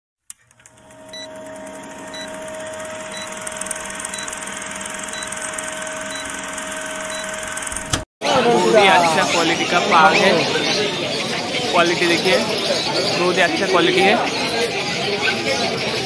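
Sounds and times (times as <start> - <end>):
film projector whirring clatter: 0.3 - 8.0.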